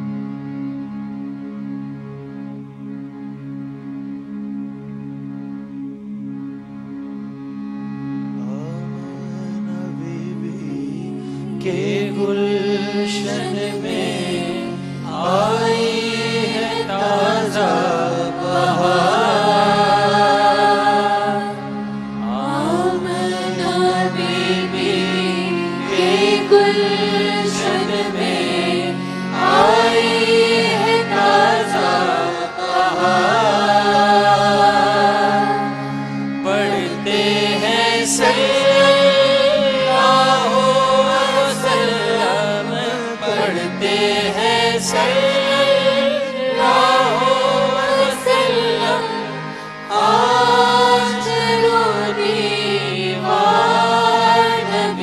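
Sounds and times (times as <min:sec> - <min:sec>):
low vocal drone: 0:08.3 - 0:55.0
man singing: 0:08.4 - 0:19.8, 0:36.4 - 0:39.1, 0:41.4 - 0:45.4
choir singing: 0:10.0 - 0:55.0.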